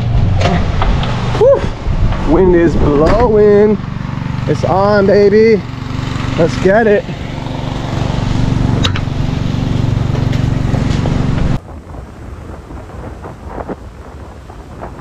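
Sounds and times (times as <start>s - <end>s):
wind buffeting microphone: 0.0s - 4.9s, 8.0s - 15.0s
steady low hum: 0.0s - 15.0s.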